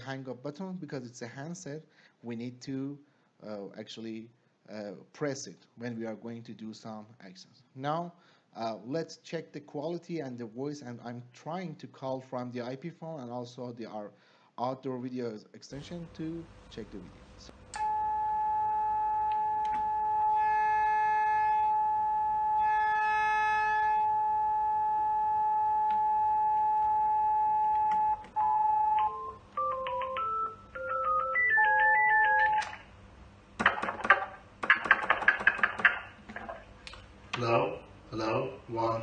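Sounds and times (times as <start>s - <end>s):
telephone line tone: 17.8s - 32.8s
clatter of clicks: 33.6s - 37.0s.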